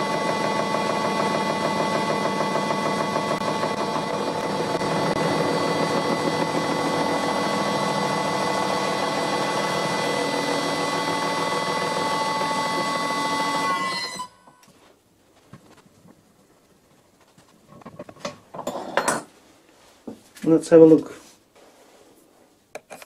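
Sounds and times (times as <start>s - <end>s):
metal cutting noise: 0.0s - 14.3s
milling machine whine: 0.0s - 14.6s.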